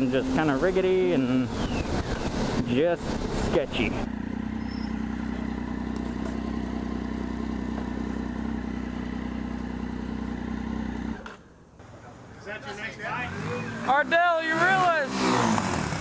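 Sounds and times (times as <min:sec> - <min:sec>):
motorcycle engine idling: 0:04.1 - 0:12.2.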